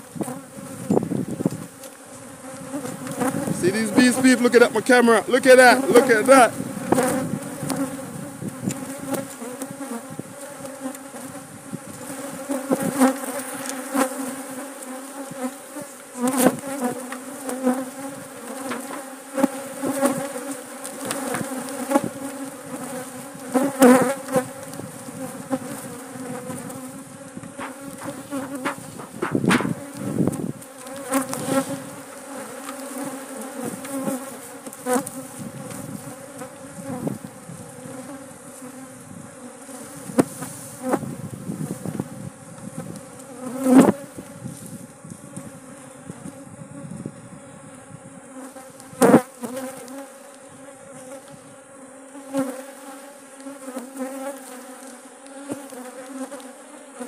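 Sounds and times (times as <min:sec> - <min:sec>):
honeybees buzzing: 0:00.0 - 0:57.0
sharp knocks: 0:27.6 - 0:29.8.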